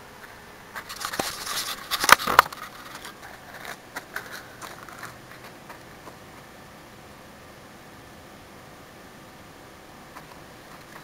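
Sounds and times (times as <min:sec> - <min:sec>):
camera handling rustling: 0:00.8 - 0:05.6.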